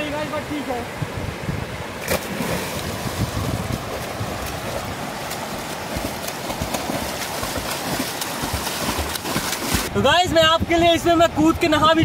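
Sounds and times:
wind buffeting microphone: 0.0 - 12.0
water rushing over rapids: 1.9 - 12.0
swimmer splashing: 2.0 - 9.9.

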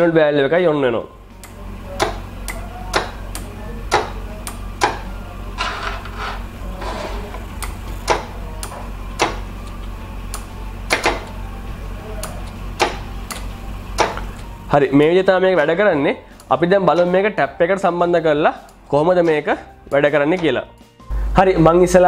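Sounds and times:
low hum: 1.1 - 15.0
relay and valve clicking: 12.2 - 14.5.

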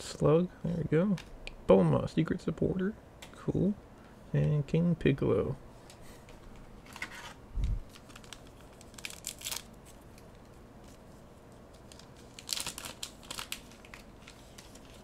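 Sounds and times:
foil pack crinkling and tearing: 6.8 - 11.0, 11.6 - 15.0.

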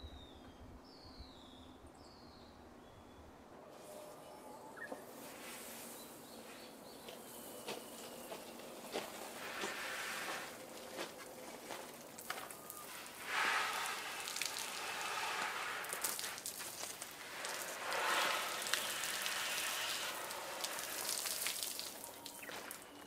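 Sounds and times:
water pattering on leaves and concrete: 7.0 - 23.0.

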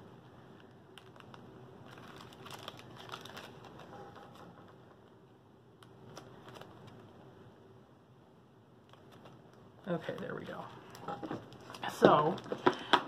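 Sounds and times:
plastic zip bag crinkling and clicking: 0.9 - 4.8, 5.8 - 7.1.

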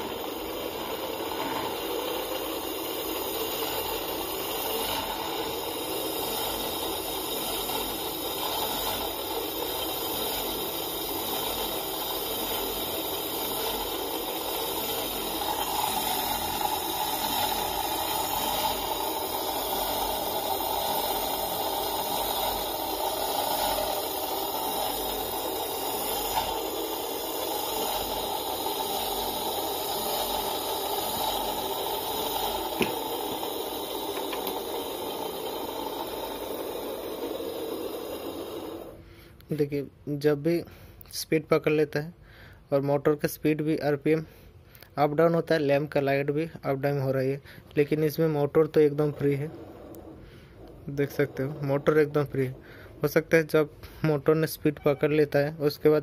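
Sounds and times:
electric motor humming: 0.0 - 39.0.

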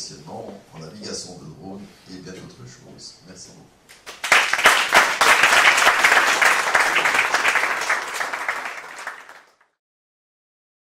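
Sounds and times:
audience applauding: 4.0 - 9.7.

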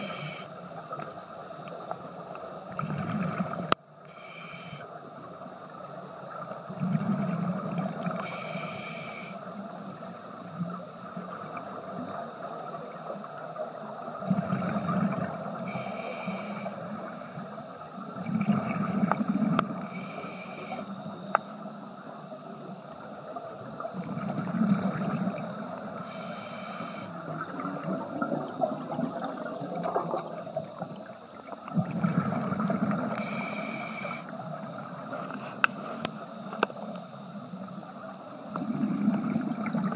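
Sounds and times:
regulator hiss: 0.0 - 0.6, 4.1 - 5.2, 8.2 - 9.6, 15.6 - 18.2, 19.8 - 21.6, 26.0 - 27.2, 33.1 - 34.4
exhaled air bubbling: 2.7 - 3.8, 6.7 - 8.2, 14.1 - 15.8, 18.2 - 20.0, 23.8 - 26.2, 27.1 - 33.5, 38.5 - 39.9.

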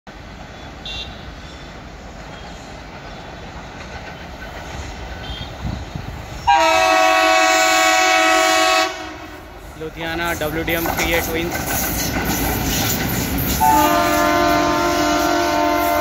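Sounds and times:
distant train rumble: 0.1 - 16.0
locomotive horn blast: 0.8 - 1.3, 6.5 - 9.4, 13.6 - 16.0.

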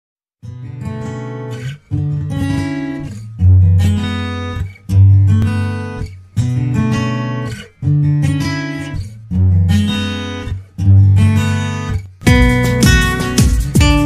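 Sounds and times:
guitar strumming chords: 0.4 - 14.0.

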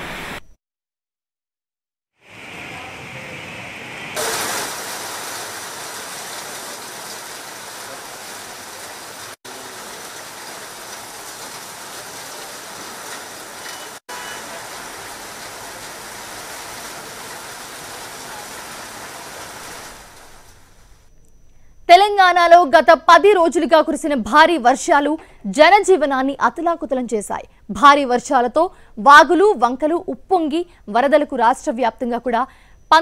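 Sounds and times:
heavy rain pouring: 2.3 - 21.0.

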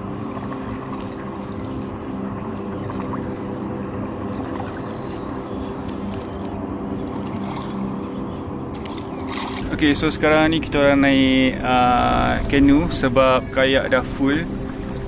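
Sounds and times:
paddle splashing in water: 0.0 - 8.0, 8.7 - 9.8
steady low rumble: 0.0 - 15.0.

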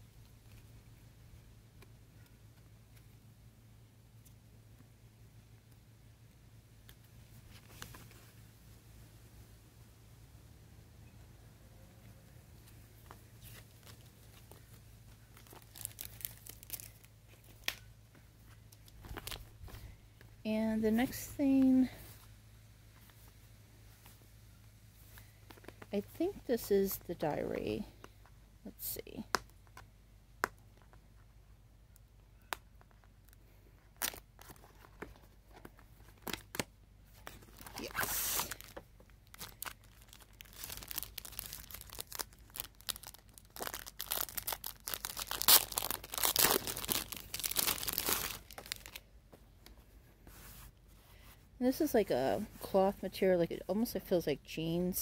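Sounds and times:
plastic packaging crinkling: 13.4 - 17.9, 18.7 - 19.9, 32.8 - 49.0.

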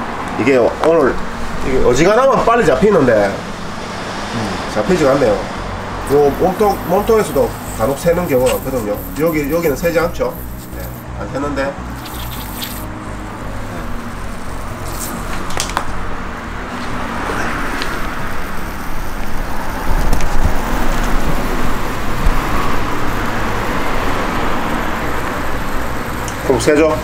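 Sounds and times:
spraying hiss of water: 6.1 - 11.0, 11.9 - 12.9.

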